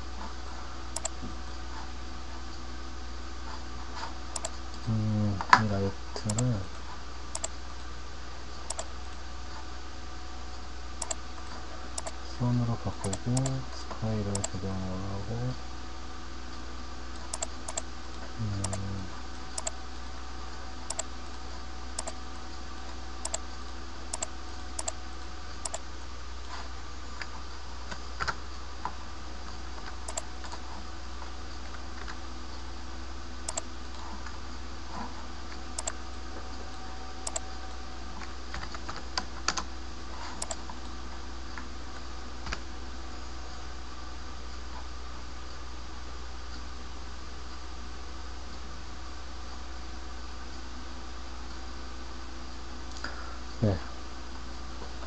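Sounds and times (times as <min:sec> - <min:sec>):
low background hum: 0:00.0 - 0:55.0
computer mouse and keyboard clicks: 0:00.9 - 0:01.3, 0:04.0 - 0:04.6, 0:05.4 - 0:06.6, 0:07.3 - 0:07.5, 0:08.7 - 0:08.9, 0:11.0 - 0:11.2, 0:12.0 - 0:12.2, 0:13.0 - 0:13.6, 0:14.3 - 0:14.6, 0:17.2 - 0:17.9, 0:18.6 - 0:18.9, 0:19.6 - 0:19.8, 0:20.9 - 0:21.1, 0:22.0 - 0:22.2, 0:23.2 - 0:23.4, 0:24.1 - 0:25.0, 0:25.6 - 0:25.8, 0:29.8 - 0:30.6, 0:33.5 - 0:34.2, 0:35.8 - 0:36.0, 0:37.2 - 0:37.4, 0:38.2 - 0:39.7, 0:40.3 - 0:40.8.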